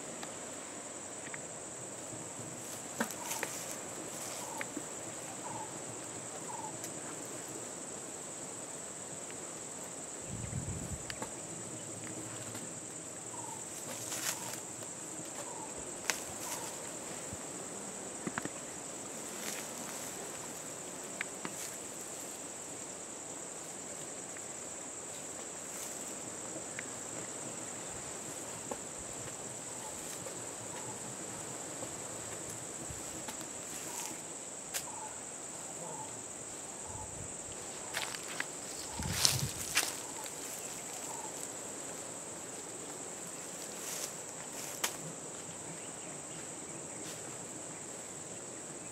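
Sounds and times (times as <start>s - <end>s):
high-pitched insect drone: 36.8s - 41.5s.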